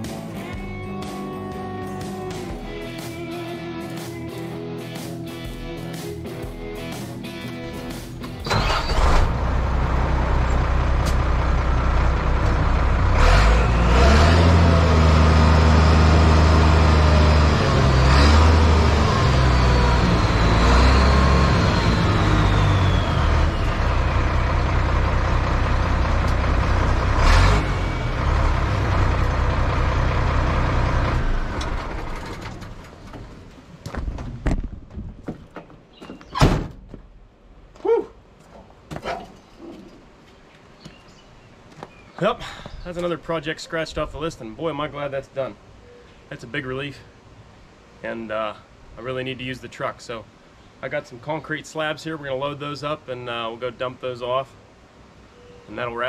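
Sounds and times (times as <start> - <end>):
diesel engine revving: 7.8 - 33.4.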